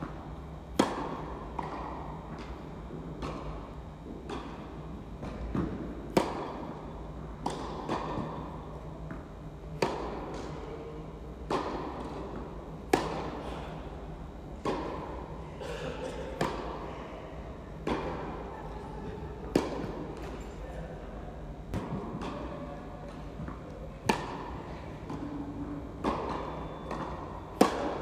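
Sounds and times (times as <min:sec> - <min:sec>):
tennis ball bouncing on court: 0:00.7 - 0:02.6, 0:05.2 - 0:06.7, 0:07.4 - 0:10.6, 0:11.4 - 0:13.3, 0:19.5 - 0:20.4, 0:23.1 - 0:25.3, 0:26.0 - 0:28.0
tennis racket hitting ball: 0:05.2 - 0:06.6, 0:09.7 - 0:10.6, 0:12.9 - 0:13.3, 0:26.0 - 0:28.0.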